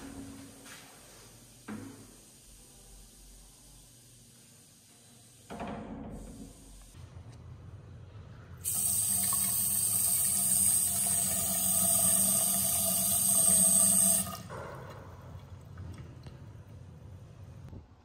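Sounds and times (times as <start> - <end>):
tap water running into sink: 8.7 - 14.6.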